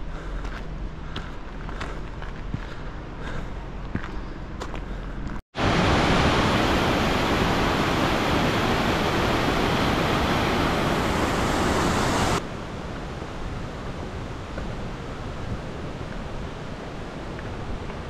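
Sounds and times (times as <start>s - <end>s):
stream rushing over rocks: 5.6s - 12.4s.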